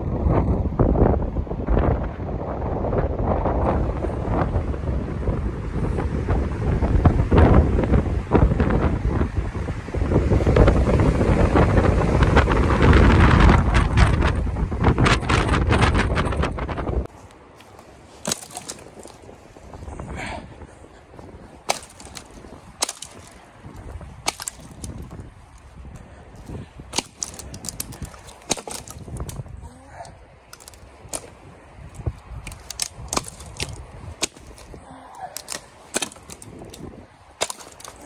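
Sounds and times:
dry twigs snapping: 17.1s - 20.0s, 21.2s - 29.6s, 30.4s - 38.0s
brush and snow crunching: 17.1s - 29.5s, 30.4s - 38.0s.

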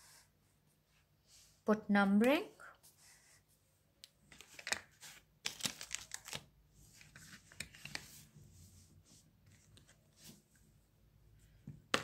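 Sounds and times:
paper rustling: 4.3s - 10.5s.

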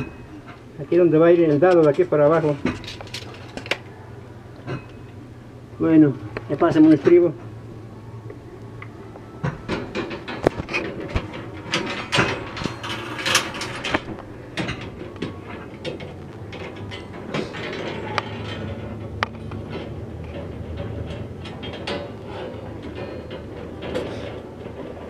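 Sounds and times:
steel rebar clinking and scraping: 9.8s - 25.0s.

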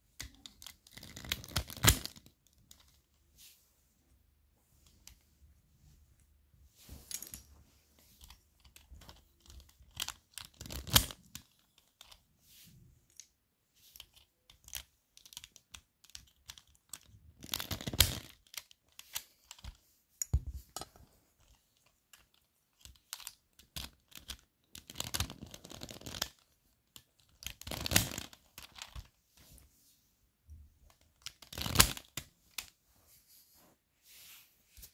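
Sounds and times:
plastic puzzle clicking and clattering: 0.2s - 3.1s, 7.0s - 12.3s, 13.1s - 19.8s, 20.4s - 29.2s, 30.8s - 32.7s.

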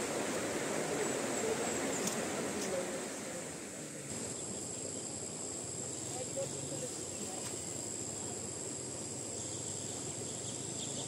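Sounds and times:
insects trilling: 0.0s - 11.0s
faint voices: 0.6s - 4.1s, 5.9s - 8.6s.

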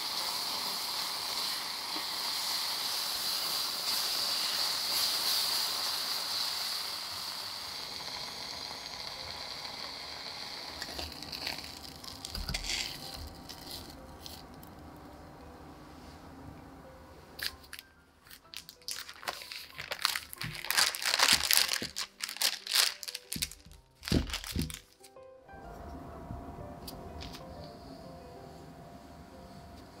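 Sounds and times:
fruit sizzling in a pot: 0.0s - 14.6s, 18.5s - 24.8s
parchment paper crinkling: 17.4s - 25.1s.

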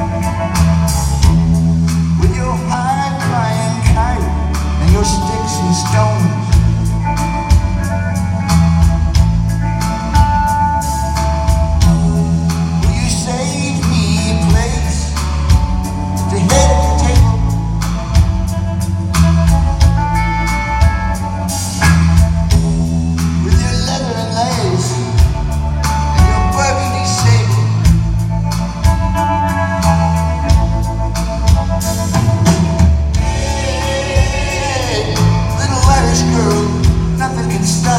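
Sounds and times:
live rock band playing: 0.0s - 37.9s
man singing: 1.2s - 7.9s, 11.8s - 17.9s, 23.2s - 28.0s, 33.1s - 37.9s
drum beat: 30.4s - 37.9s.

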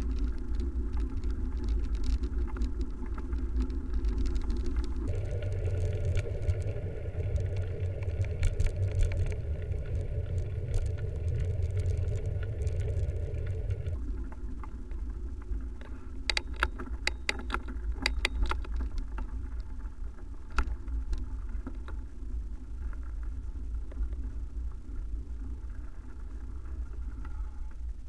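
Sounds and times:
wind and road rumble: 0.0s - 28.0s
loud hum: 5.1s - 14.0s
sharp rattling clicks: 16.3s - 19.0s.

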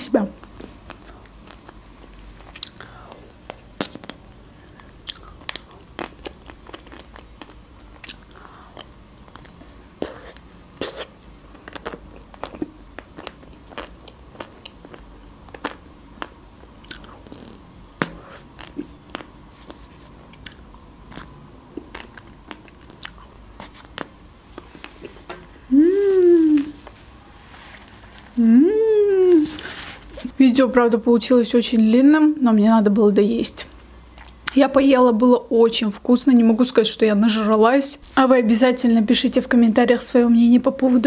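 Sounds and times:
crunching and chewing: 0.4s - 25.3s, 34.1s - 34.6s.

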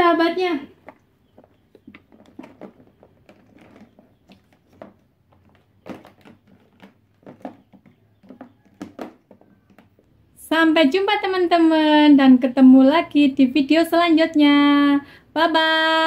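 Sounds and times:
plastic figures clacking: 0.8s - 10.2s.

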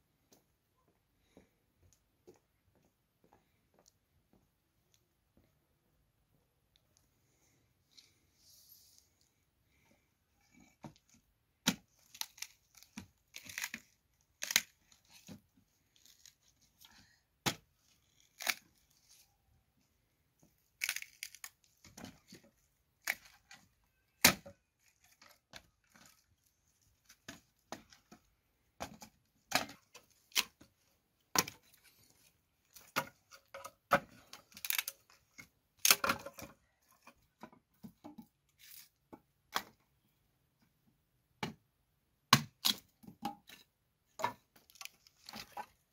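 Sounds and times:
hatchet chopping wood: 42.3s - 42.8s.

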